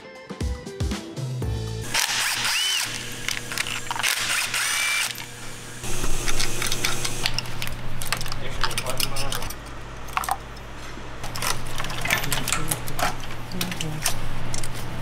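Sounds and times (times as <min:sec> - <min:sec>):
cordless drill whirring: 0:01.8 - 0:07.3.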